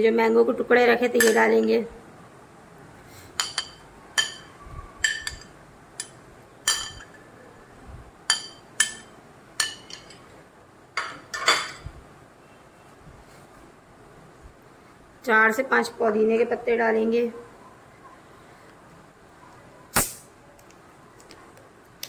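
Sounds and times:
metal spoon clinking on glass: 0:03.4 - 0:07.2, 0:08.3 - 0:10.2.

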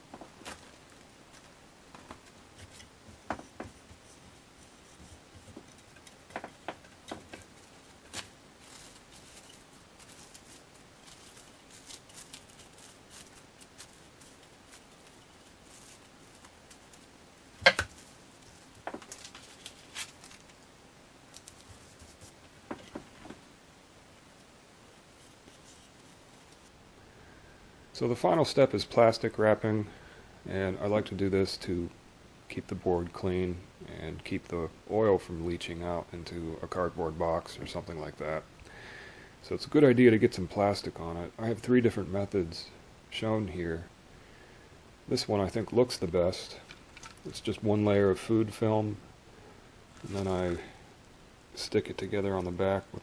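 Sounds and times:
plastic film crinkling: 0:04.1 - 0:17.1, 0:17.7 - 0:20.7, 0:21.3 - 0:23.0, 0:49.9 - 0:50.7.

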